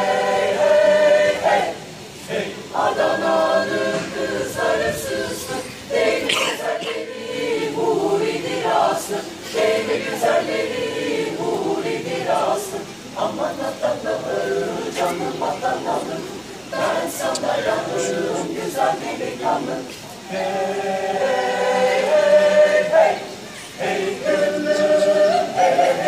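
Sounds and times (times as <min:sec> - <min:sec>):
mixed choir singing a cappella: 0:00.0 - 0:26.0.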